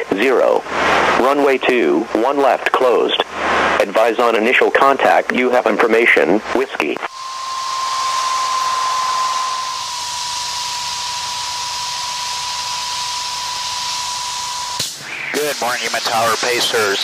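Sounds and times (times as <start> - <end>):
radio static hiss: 0.0 - 17.0
steady whistle tone: 7.1 - 17.0.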